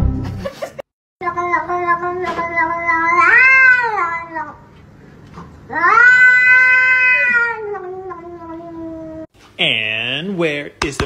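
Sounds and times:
cat yowling: 0:01.4 - 0:04.6, 0:05.7 - 0:09.3.

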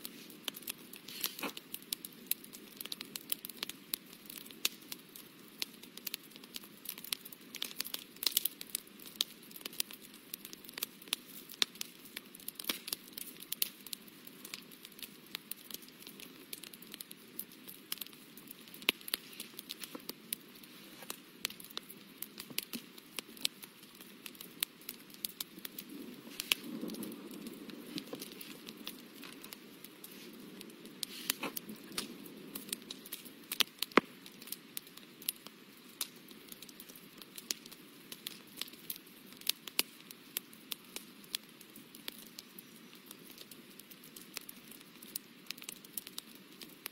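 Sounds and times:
hand rustling on paper: 0:31.0 - 0:32.1.

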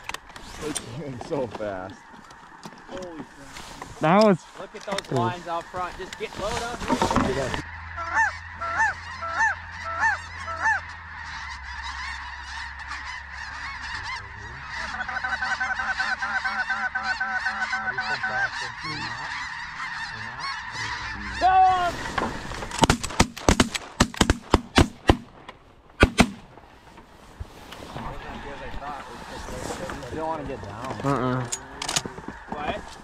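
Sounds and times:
geese honking: 0:00.0 - 0:23.2, 0:27.8 - 0:33.0
shotgun shots: 0:22.8 - 0:25.3, 0:26.0 - 0:26.5.

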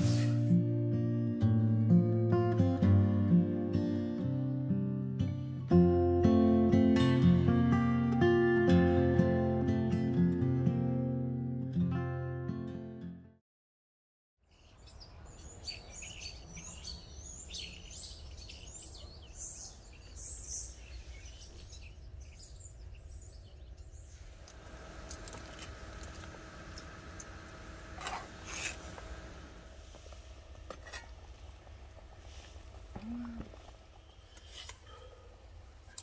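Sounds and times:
small birds chirping: 0:14.5 - 0:29.4, 0:32.2 - 0:36.0
faint steady hum: 0:16.4 - 0:36.0.

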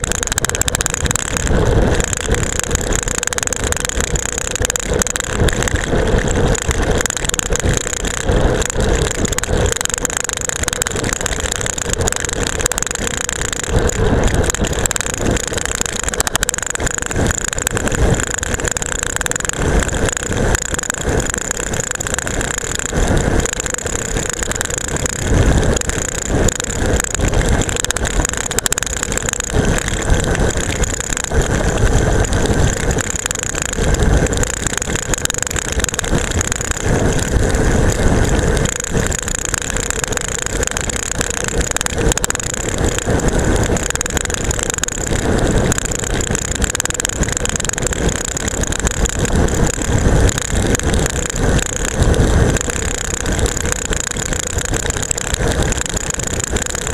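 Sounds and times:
rush of wind: 0:00.0 - 0:56.9.

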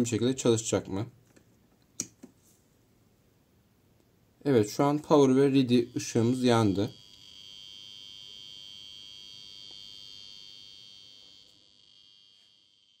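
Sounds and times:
high-pitched alarm buzzer tone: 0:05.1 - 0:13.0.

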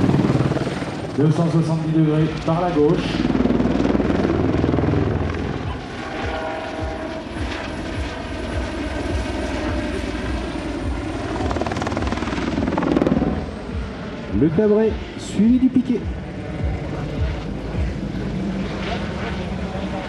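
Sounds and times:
helicopter rotor beating: 0:00.0 - 0:20.0
steady higher tone: 0:04.4 - 0:20.0.

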